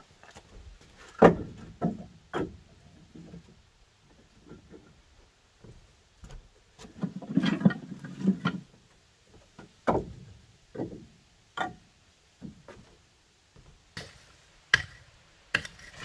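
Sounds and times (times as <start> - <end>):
firewood pieces knocking together: 1.1 - 2.6.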